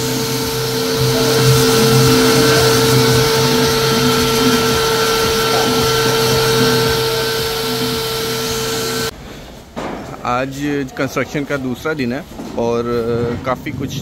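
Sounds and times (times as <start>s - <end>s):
orbital sander whining: 0.0s - 9.1s.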